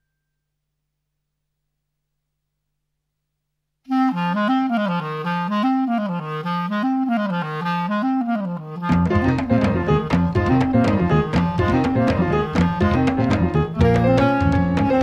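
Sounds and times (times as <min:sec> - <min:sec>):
clarinet playing low notes: 0:03.9 - 0:15.0.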